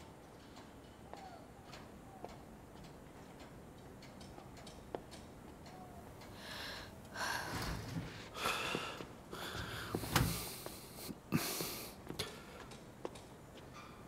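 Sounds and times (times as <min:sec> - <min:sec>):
person breathing hard: 0:06.3 - 0:12.8.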